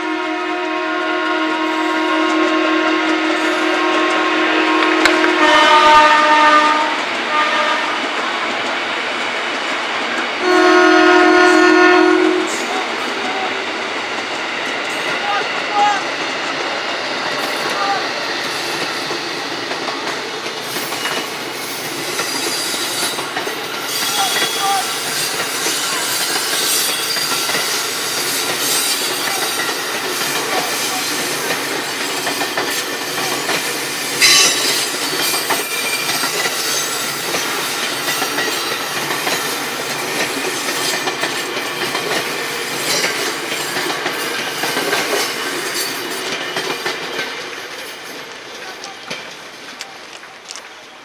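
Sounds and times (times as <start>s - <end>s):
train rumbling on tracks: 0.0s - 51.0s
wheels clacking over rail joints: 12.4s - 51.0s
wheels squealing: 20.6s - 32.9s.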